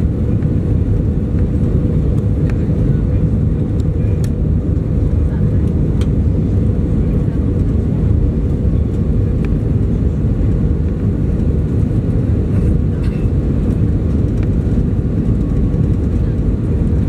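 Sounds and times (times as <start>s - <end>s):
airplane cabin engine rumble: 0.0s - 17.0s.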